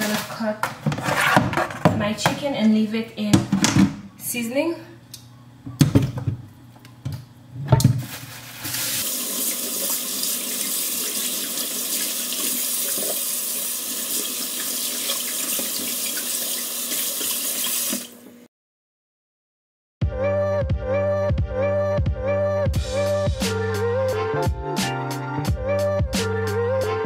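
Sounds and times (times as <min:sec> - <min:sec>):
tap water running into sink: 0:09.0 - 0:18.2.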